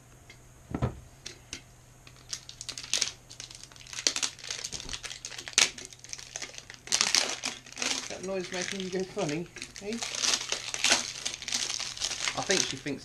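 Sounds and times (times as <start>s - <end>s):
dull knock: 0.7s - 1.0s
packaging crinkling and rustling: 2.1s - 13.0s.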